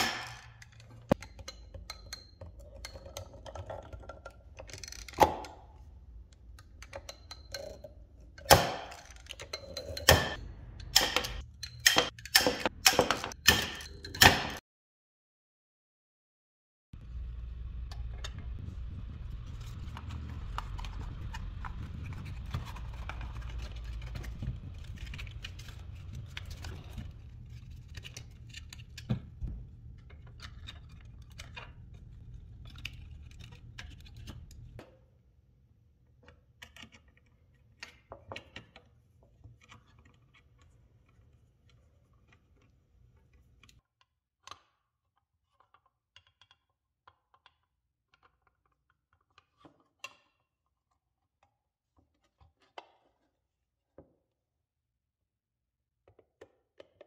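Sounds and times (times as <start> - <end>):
steady low hum: 10.2 - 11.9, 17.0 - 34.8.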